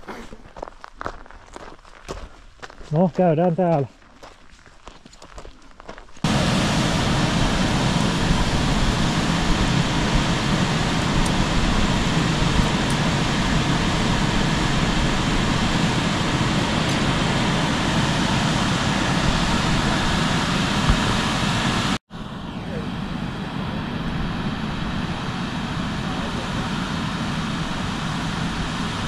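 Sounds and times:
loud rushing noise: 6.3s - 29.0s.

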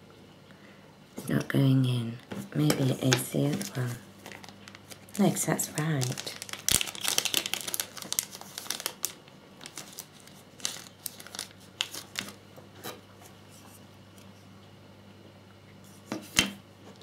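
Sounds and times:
plastic bag crinkling: 2.7s - 12.4s.

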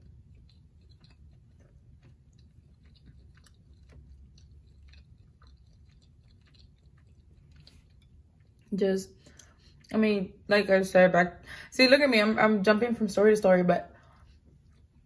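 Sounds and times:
faint chewing with mouth clicks: 0.0s - 10.0s, 13.9s - 15.0s.

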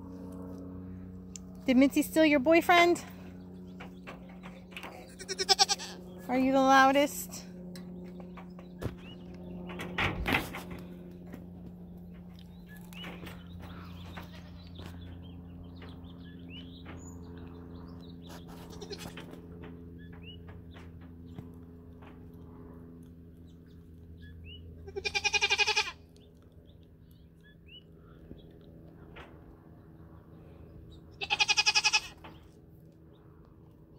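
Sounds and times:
steady low hum: 0.0s - 33.9s
goats bleating: 4.9s - 6.0s, 24.8s - 26.0s, 31.2s - 32.2s.

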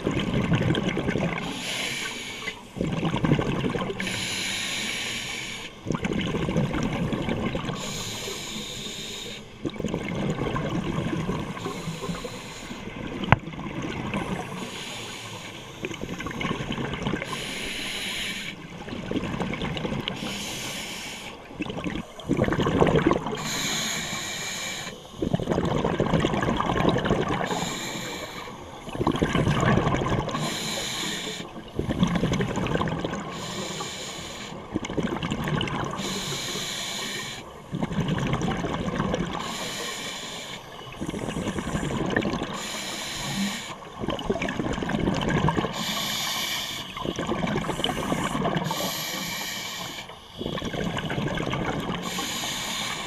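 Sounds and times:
exhaled bubbles rumbling: 0.0s - 1.6s, 2.5s - 4.2s, 5.8s - 8.0s, 9.5s - 14.9s, 15.7s - 17.5s, 18.6s - 20.4s, 21.3s - 23.7s, 25.0s - 27.9s, 28.5s - 30.7s, 31.5s - 33.4s, 34.6s - 36.3s, 37.4s - 39.6s, 40.6s - 42.8s, 43.5s - 45.9s, 46.9s - 49.1s, 50.0s - 52.4s
regulator inhale hiss: 1.4s - 2.8s, 4.0s - 5.8s, 7.7s - 9.6s, 11.6s - 12.9s, 14.3s - 16.4s, 17.2s - 18.6s, 20.1s - 21.5s, 23.4s - 25.3s, 27.4s - 28.9s, 30.3s - 31.6s, 33.2s - 34.7s, 35.9s - 37.6s, 39.3s - 43.9s, 45.6s - 50.9s, 52.0s - 53.0s.

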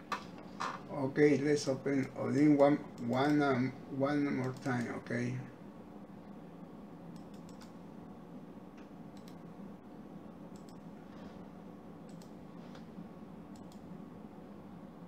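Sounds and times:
steady low hum: 0.0s - 15.0s
computer mouse clicks: 3.0s - 3.4s, 7.1s - 7.8s, 8.8s - 9.4s, 10.5s - 10.9s, 12.1s - 12.9s, 13.5s - 13.9s.

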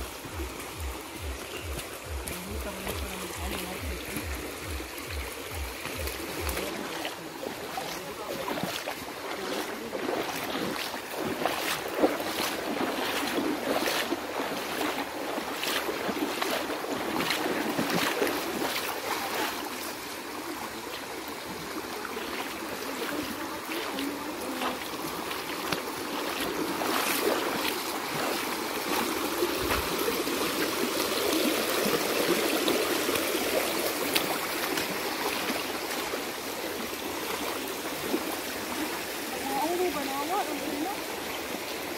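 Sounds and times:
feet wading through water: 0.0s - 41.9s
water rushing over stones: 0.0s - 41.9s.

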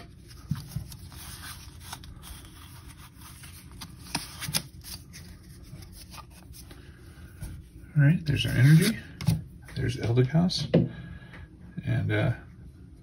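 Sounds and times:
trading cards rustling: 0.0s - 7.0s.

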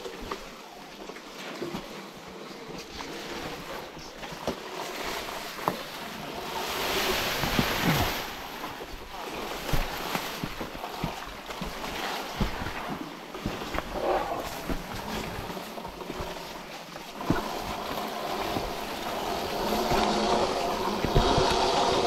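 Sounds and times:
dirt bike tyre noise: 5.0s - 22.0s.

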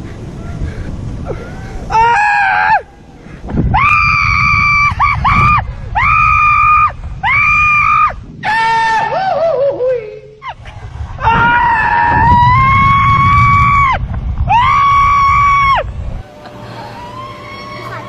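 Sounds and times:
wind rumble on microphone: 0.0s - 9.8s, 10.4s - 16.3s
man screaming in terror: 3.8s - 9.6s.

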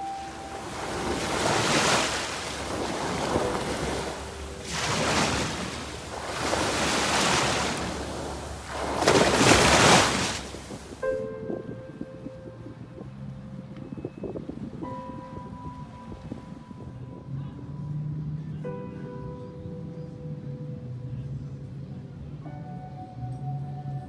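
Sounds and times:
small waves washing on sand: 0.0s - 11.0s.

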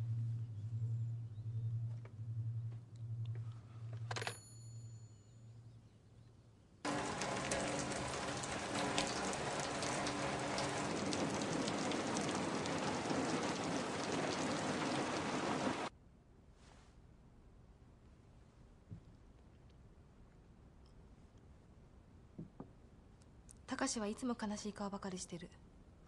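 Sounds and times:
heavy rain falling: 6.9s - 15.9s.

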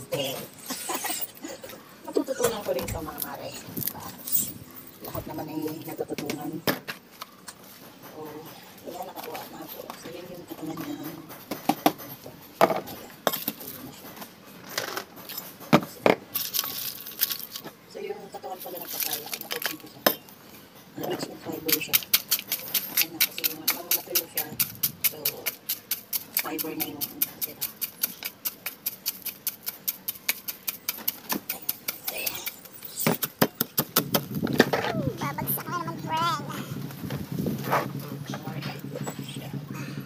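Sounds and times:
pestle pounding in ceramic mortar: 21.6s - 35.4s.

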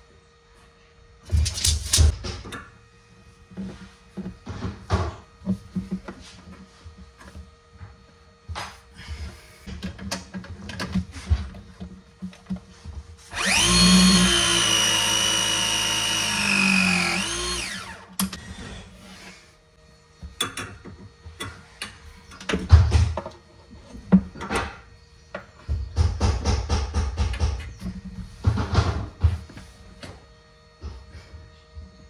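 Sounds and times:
tool and pipe clicks and knocks: 9.6s - 12.7s, 20.2s - 23.4s, 24.0s - 30.2s
press tool motor whining: 13.3s - 18.1s.

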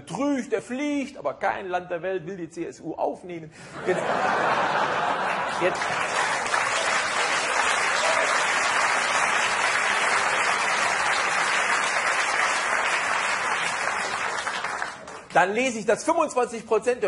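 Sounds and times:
audience applauding: 4.8s - 15.4s.

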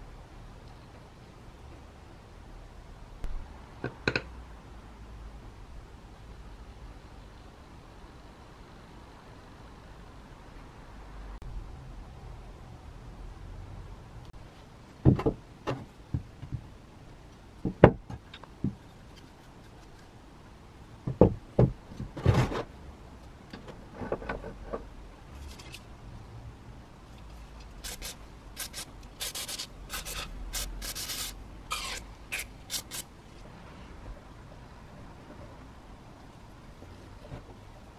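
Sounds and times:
short hissing sprays: 27.8s - 33.0s.

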